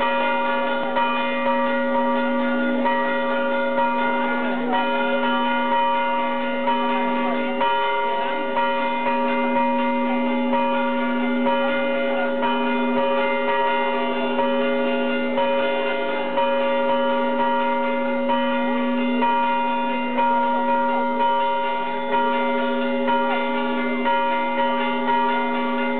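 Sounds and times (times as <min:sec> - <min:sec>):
church bells ringing: 0:00.0 - 0:25.9.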